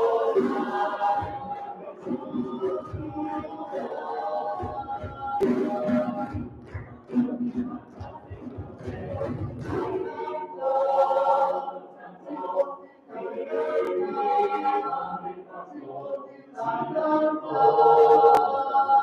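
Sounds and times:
people clapping: 0:00.0 - 0:10.2
mixed choir singing: 0:00.0 - 0:19.0.

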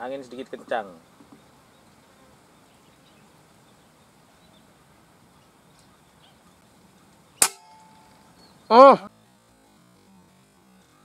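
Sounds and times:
high bird chirps: 0:00.9 - 0:08.8.

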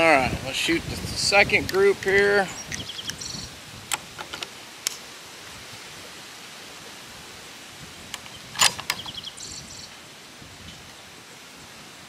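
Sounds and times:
wind hiss: 0:00.0 - 0:12.0
rifle handling clicks: 0:03.9 - 0:05.0, 0:08.1 - 0:09.1.

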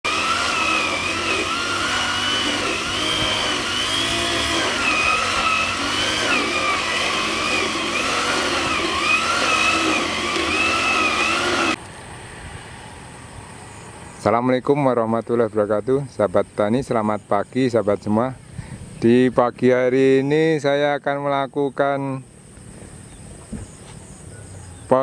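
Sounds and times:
brush cutter engine under load: 0:00.0 - 0:11.8.

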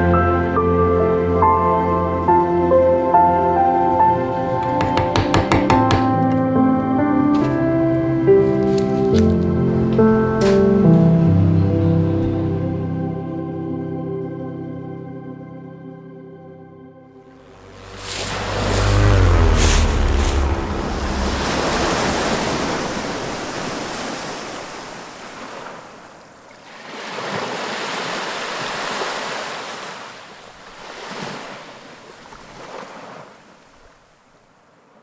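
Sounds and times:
ocean waves washing in: 0:17.4 - 0:35.0.

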